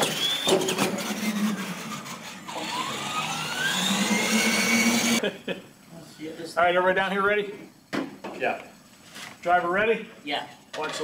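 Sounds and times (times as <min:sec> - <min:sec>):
electric motor whining: 0:00.0 - 0:05.2.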